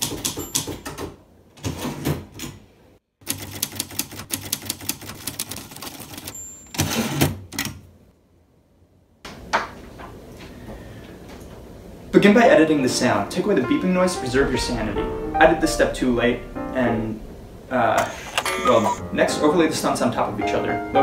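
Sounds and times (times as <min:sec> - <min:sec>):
manual typewriter typing: 0:00.0 - 0:01.7, 0:03.2 - 0:07.8.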